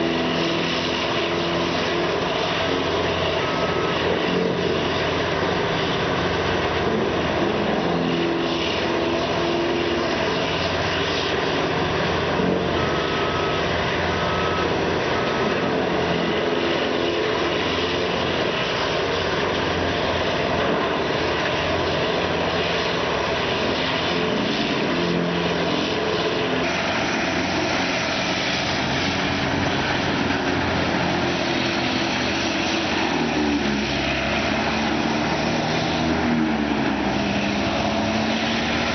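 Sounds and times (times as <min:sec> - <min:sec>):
tub grinder grinding wood: 0:04.0 - 0:13.5, 0:15.0 - 0:38.9.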